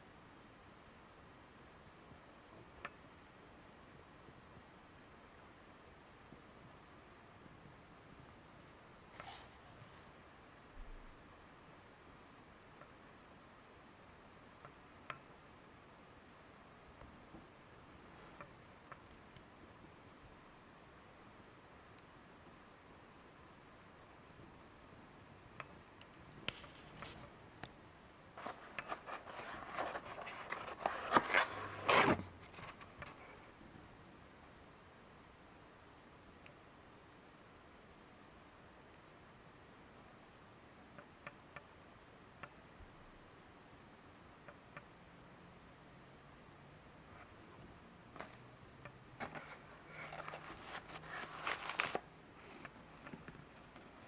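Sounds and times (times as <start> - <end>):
paper rustling and scraping: 28.4 - 33.3, 49.2 - 54.0
foam packaging crinkling: 49.3 - 52.6.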